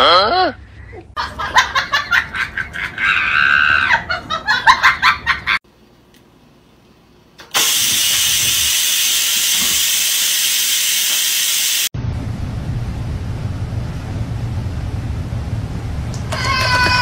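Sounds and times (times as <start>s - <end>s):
rice cooker steam hiss: 7.5s - 11.9s.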